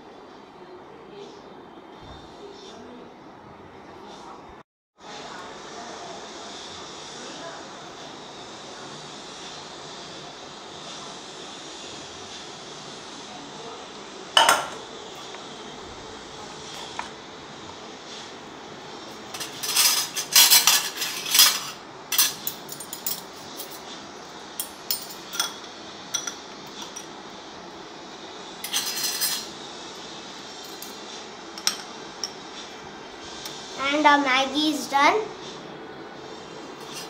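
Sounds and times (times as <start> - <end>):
metal kitchenware clanking: 14.4 - 14.8, 19.3 - 23.8, 28.6 - 29.5
fork clinking and scraping in pan: 19.4 - 22.4, 28.6 - 29.5.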